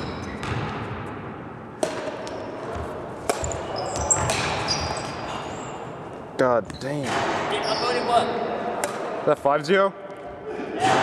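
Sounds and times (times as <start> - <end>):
racket hitting shuttlecock: 1.8 - 5.2, 8.8 - 9.1
shoe squeaks on wooden floor: 3.4 - 5.9, 6.6 - 8.1.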